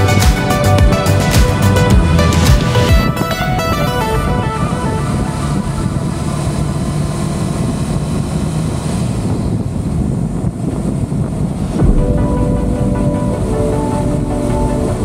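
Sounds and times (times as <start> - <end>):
background music: 0.0 - 7.1, 11.8 - 15.0
wind noise on microphone: 0.0 - 15.0
short thump: 11.8 - 13.4.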